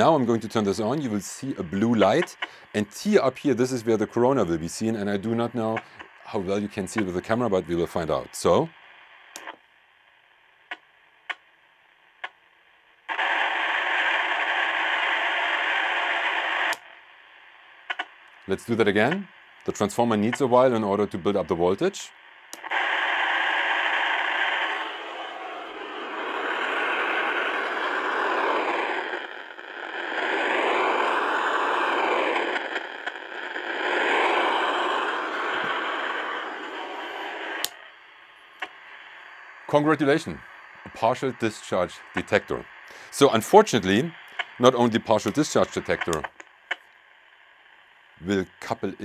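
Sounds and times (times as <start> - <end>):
loud burst of radio static: 0.0 - 9.5, 13.1 - 16.8, 17.4 - 49.0
radio hissing faintly: 0.0 - 49.0
sharp clicks: 9.3 - 9.6, 10.7 - 11.4, 12.2 - 12.4, 16.6 - 17.0, 17.8 - 20.5, 37.5 - 37.9, 42.0 - 42.4, 44.2 - 47.0.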